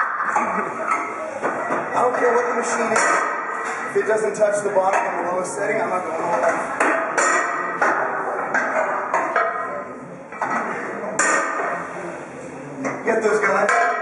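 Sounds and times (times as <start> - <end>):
busy background: 0.0 - 14.0
gym weights clanking: 6.4 - 11.9.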